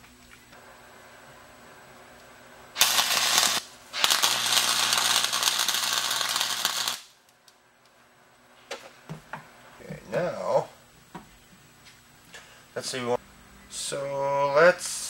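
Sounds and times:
welding arc crackling: 0.5 - 8.0.

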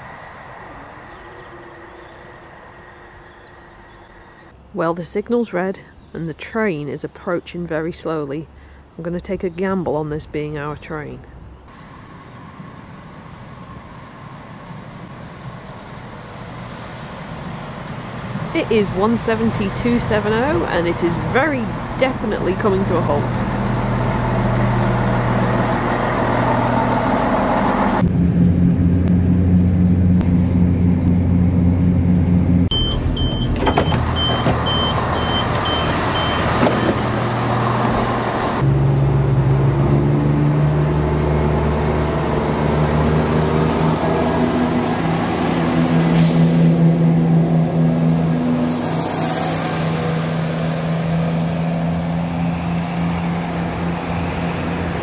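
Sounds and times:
diesel train engines running: 0.0 - 5.3, 10.8 - 55.0
high beeps: 32.7 - 37.0.

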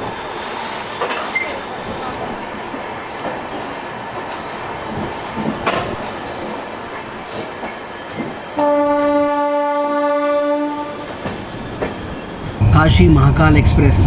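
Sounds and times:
train rolling slowly: 0.0 - 14.0
train horn blast: 8.6 - 11.1.

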